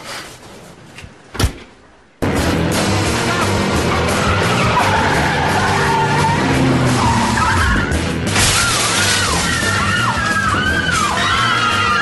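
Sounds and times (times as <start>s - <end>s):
car engines: 2.2s - 11.8s
background music: 2.2s - 12.0s
tyres screeching: 3.8s - 12.0s.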